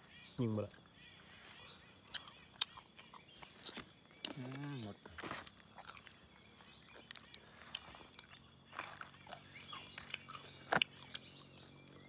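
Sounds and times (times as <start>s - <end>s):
person chewing meat: 2.1s - 11.3s
sharp crunches: 2.1s - 12.0s.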